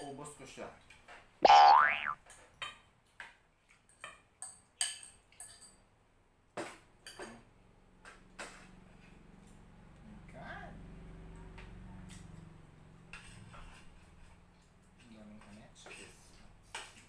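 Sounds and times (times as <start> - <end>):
spoons clinking on ceramic bowls: 3.9 - 5.8.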